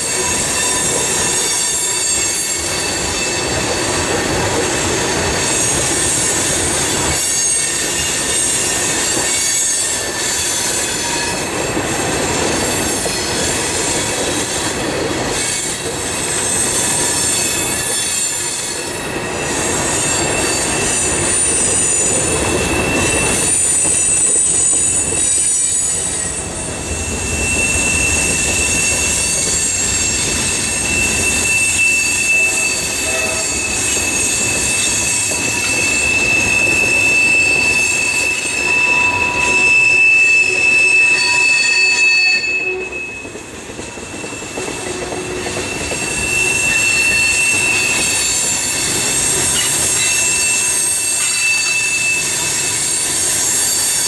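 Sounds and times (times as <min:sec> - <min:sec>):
high ringing flange squeal: 0:00.0 - 0:54.0
train wheels rumbling over rails: 0:00.0 - 0:54.0
low steady squeal: 0:15.8 - 0:53.9.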